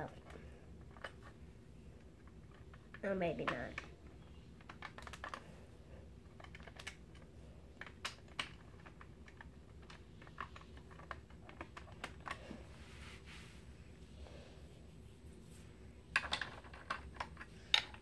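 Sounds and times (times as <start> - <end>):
plastic bricks clicking and clattering: 2.0 - 5.4, 6.3 - 12.4, 16.1 - 18.0.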